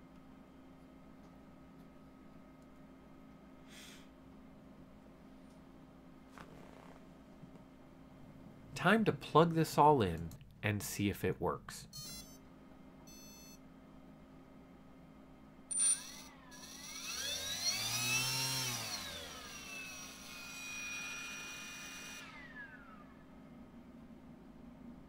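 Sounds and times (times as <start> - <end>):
electric motor whine: 15.8 - 23.3.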